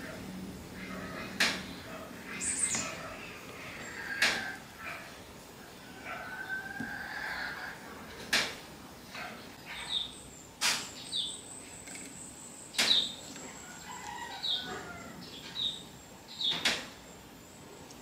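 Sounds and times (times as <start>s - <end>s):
falling bird chirps: 9.4s - 17.0s.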